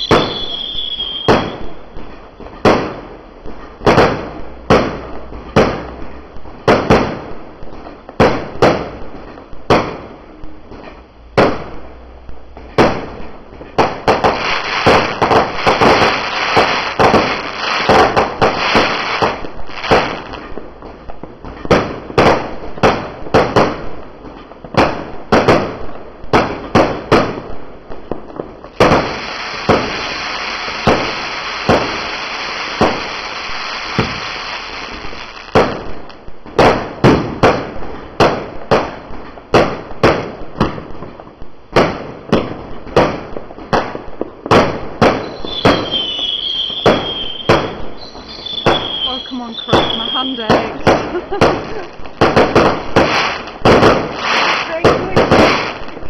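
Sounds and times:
fireworks hissing and crackling: 0.0s - 56.0s
fireworks popping and cracking: 0.0s - 56.0s
steady hiss: 9.0s - 21.4s, 27.5s - 36.4s, 47.4s - 56.0s.

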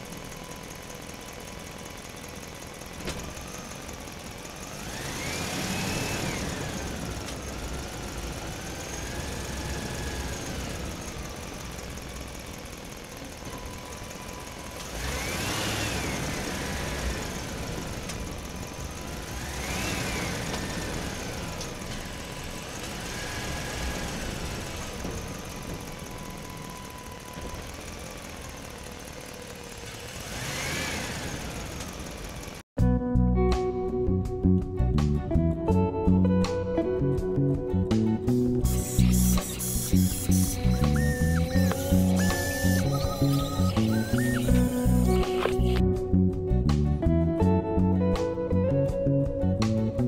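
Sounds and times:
small electric motors whining: 0.0s - 32.6s, 38.6s - 45.8s.

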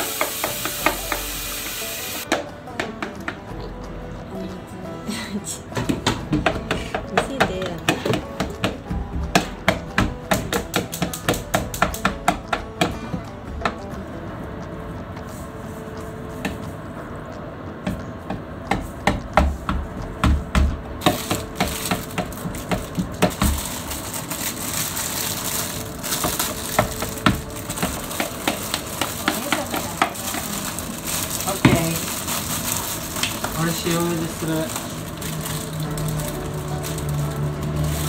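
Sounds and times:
steady hiss: 0.0s - 2.3s
utensils and bowls knocking: 0.0s - 4.1s, 5.7s - 15.1s, 17.7s - 38.0s.

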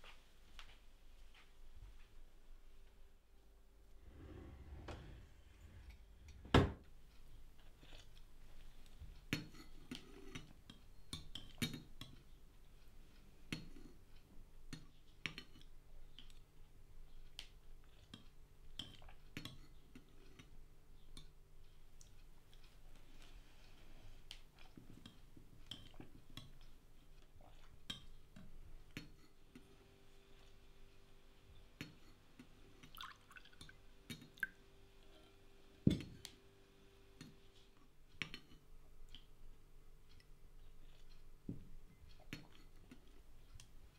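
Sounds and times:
drawer pushed shut: 4.1s - 6.8s
wine pouring into a glass: 32.9s - 33.7s.

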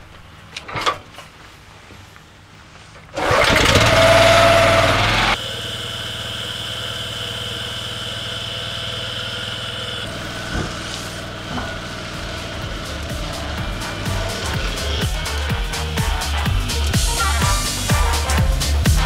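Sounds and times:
pressure washer engine: 3.2s - 19.0s.

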